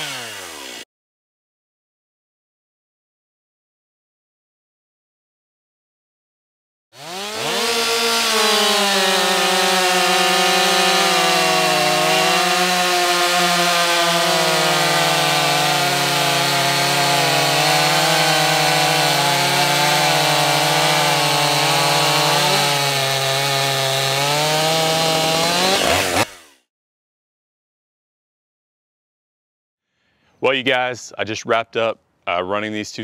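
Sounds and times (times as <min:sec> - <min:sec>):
chainsaws cutting log: 0:00.0 - 0:00.9, 0:07.0 - 0:26.7.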